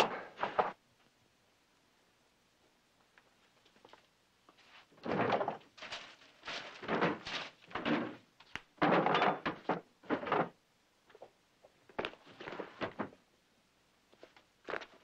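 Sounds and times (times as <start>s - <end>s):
drawers scraping and knocking: 4.9s - 10.6s, 12.2s - 13.2s.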